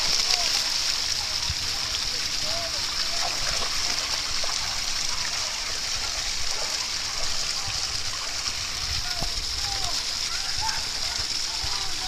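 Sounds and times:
small waterfall splashing: 0.0 - 12.0
dogs splashing in water: 2.9 - 8.6.

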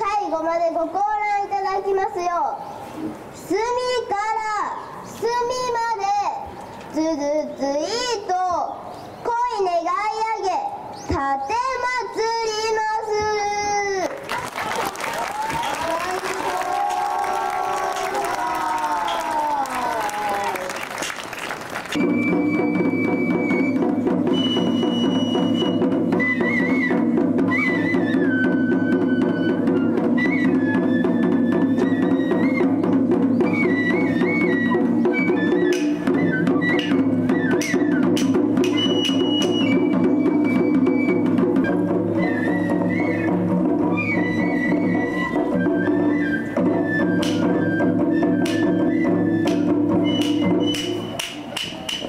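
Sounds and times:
bamboo flute long high notes: 14.8 - 20.8, 22.0 - 52.0
sharp percussion strikes: 35.2 - 40.6, 46.6 - 48.8, 49.4 - 52.0.

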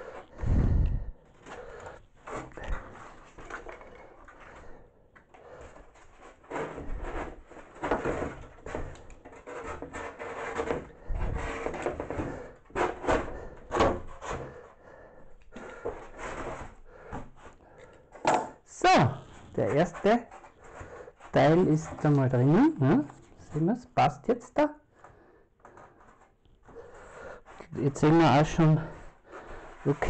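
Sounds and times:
knife cutting foam board: 5.8 - 14.7, 15.6 - 23.7.

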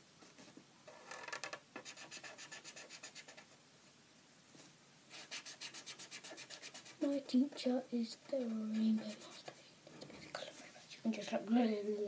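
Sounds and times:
felt-tip pen scratching on paper: 5.2 - 7.0.

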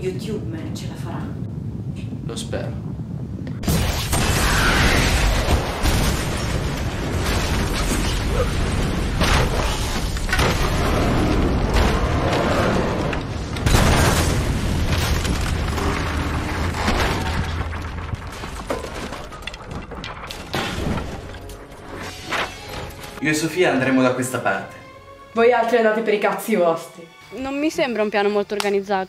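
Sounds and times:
explosion booming rumble: 2.8 - 21.2
debris crashing and banging: 3.8 - 23.2.

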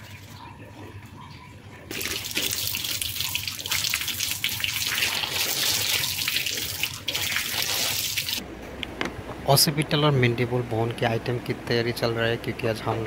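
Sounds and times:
water running from a tap: 1.9 - 8.4
water splashing on face: 1.9 - 8.4.

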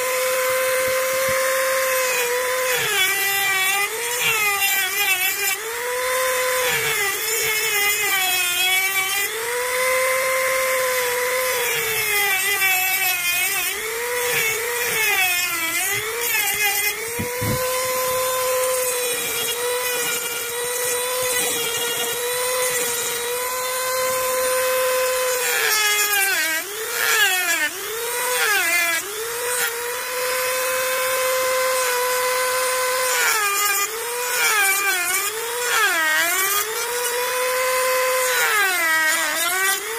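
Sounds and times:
rotary tool grinding shell: 0.0 - 28.7.

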